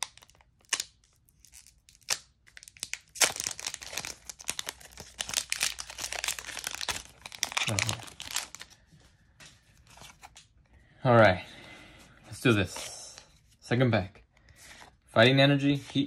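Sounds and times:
foil wrapper tearing and crinkling: 0.0 - 8.7.

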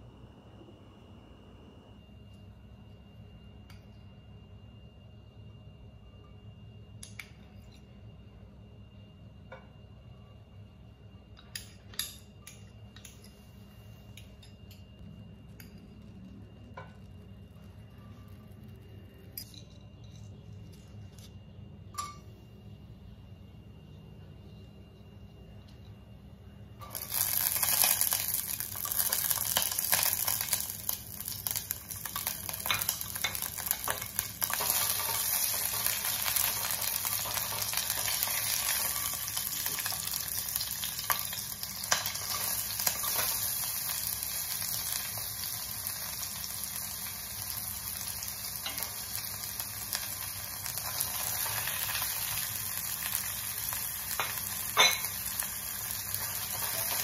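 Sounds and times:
food sizzling in hot oil: 26.8 - 57.0.

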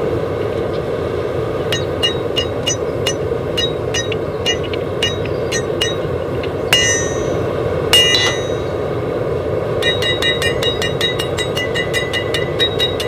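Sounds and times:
steady rushing noise: 0.0 - 13.0
hammer ringing on anvil: 1.7 - 8.9, 9.8 - 13.0.

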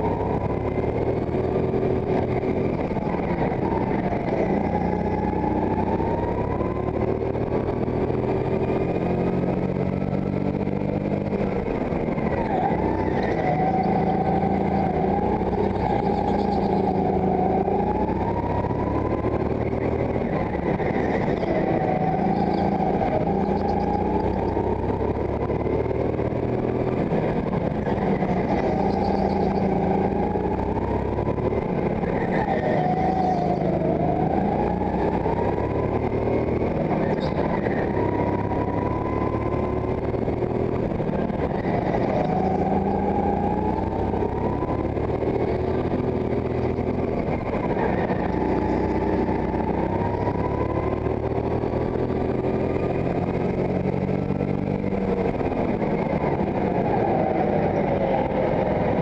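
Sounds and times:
go-kart engine revving: 0.0 - 59.0.

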